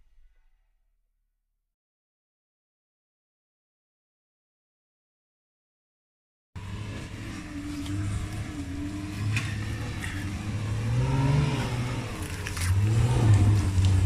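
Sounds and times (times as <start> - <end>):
off-road vehicle engine revving: 6.6 - 14.0.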